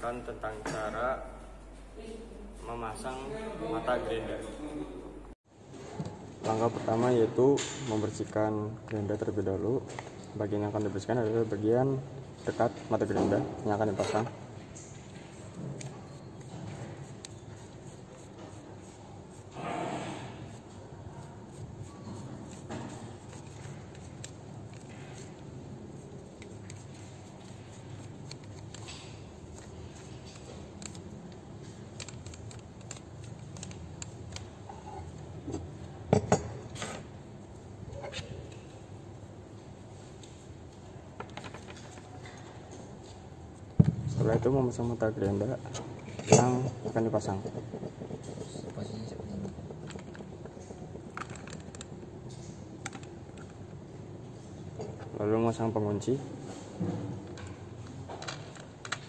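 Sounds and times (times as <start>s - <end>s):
toothbrush scrubbing metal: 13.7s - 19.6s, 20.2s - 35.0s, 46.0s - 51.5s.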